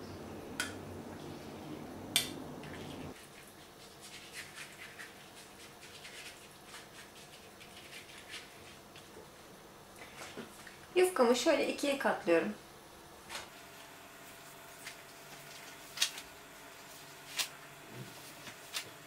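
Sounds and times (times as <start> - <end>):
low hum: 0.0 - 3.2.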